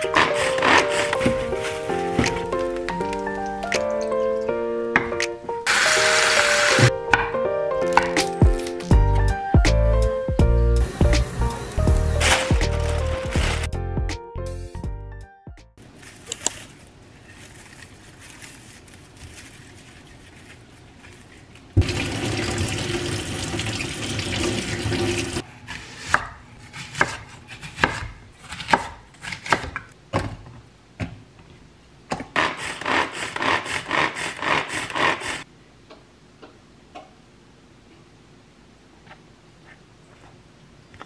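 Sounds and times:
food chopper whirring: 5.7s - 6.9s
net bag rustling: 12.0s - 13.7s, 15.8s - 21.5s.

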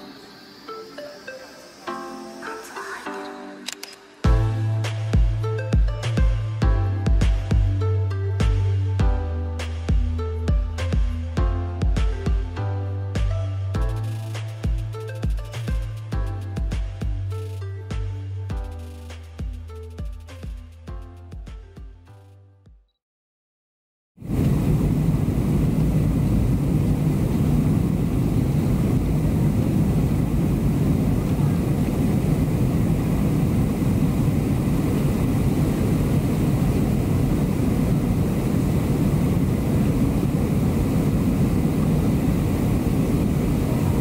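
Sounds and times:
airliner cabin engine and airflow noise: 24.2s - 44.0s.

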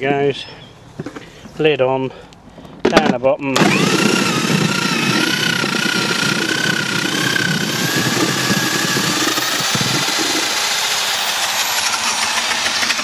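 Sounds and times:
apples grinding with rattle: 3.6s - 13.0s
electric drill motor whining: 3.6s - 13.0s.

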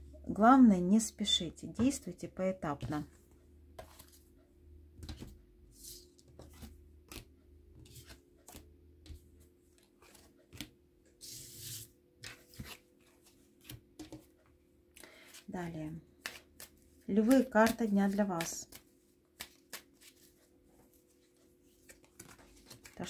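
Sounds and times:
cards rustling: 16.1s - 23.0s
cards clicking and flicking: 16.2s - 20.3s.

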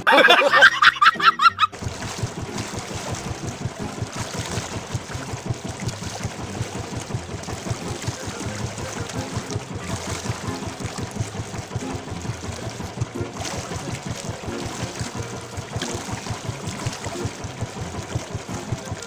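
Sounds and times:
man laughing: 0.0s - 1.7s
water sloshing around boat: 0.1s - 19.0s.

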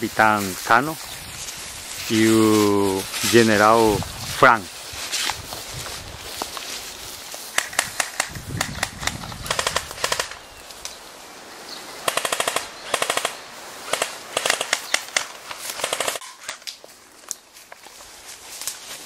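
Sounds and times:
airsoft rifle automatic bursts: 7.6s - 10.4s, 12.0s - 16.2s.

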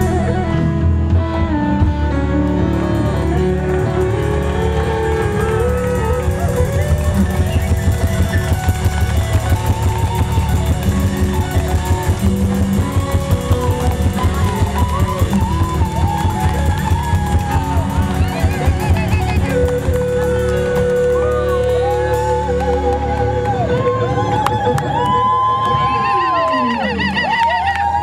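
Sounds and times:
bass keyboard and electric guitar: 0.0s - 28.0s
saxophone: 0.0s - 28.0s
drum kit beat: 2.5s - 23.5s
bongos: 2.6s - 23.7s.

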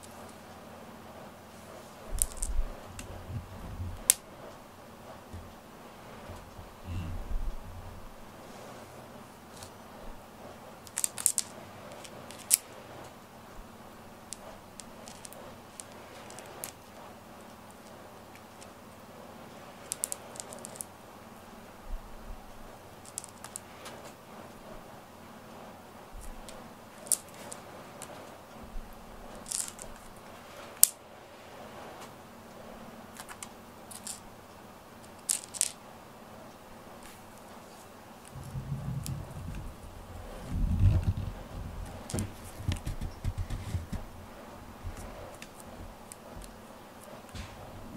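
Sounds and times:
cat pawing at cord clicks: 41.9s - 44.0s.

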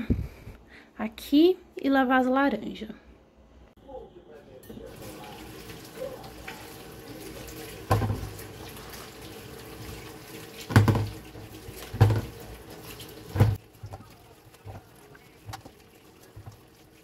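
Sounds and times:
tap water running into sink: 4.8s - 17.0s
oranges thudding into plastic bowl: 10.7s - 11.2s, 11.9s - 12.4s.

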